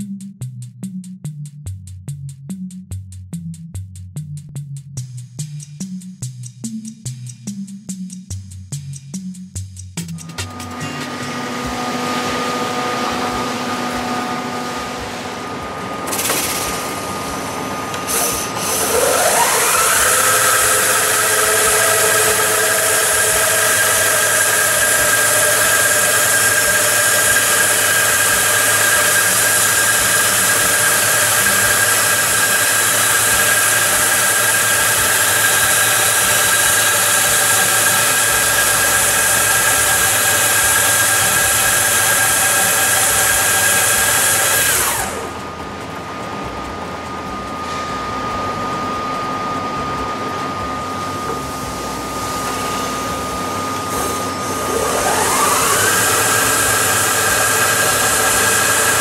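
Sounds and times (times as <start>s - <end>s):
polishing machine whining: 10.3s - 45.5s, 47.2s - 59.0s.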